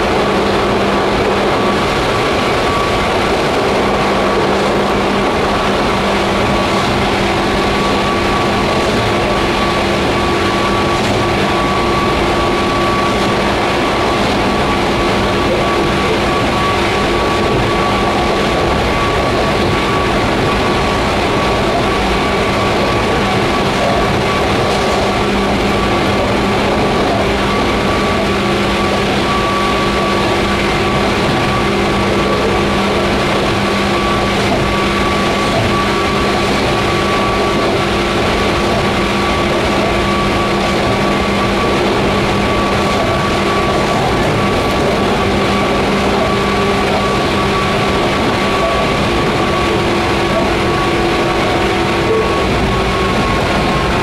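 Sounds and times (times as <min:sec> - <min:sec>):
steady humming tones: 0:00.0 - 0:54.0
train wheels rumbling: 0:00.0 - 0:54.0.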